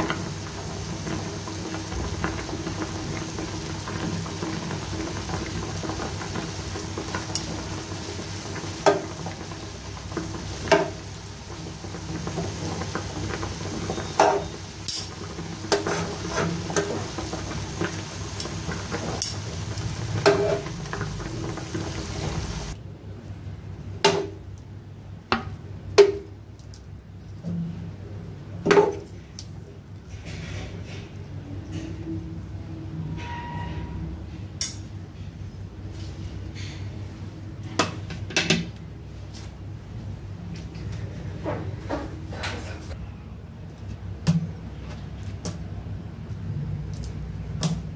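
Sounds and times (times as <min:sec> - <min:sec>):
water boiling in a pan: 0:00.0 - 0:22.8.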